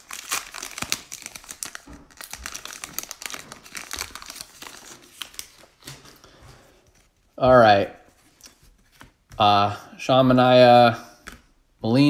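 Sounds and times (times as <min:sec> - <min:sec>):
card pack wrapper crinkling: 0:00.0 - 0:06.2.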